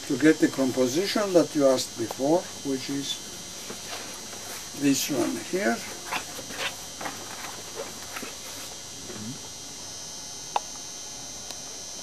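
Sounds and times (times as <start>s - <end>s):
paper rustling and scraping: 3.6s - 8.8s.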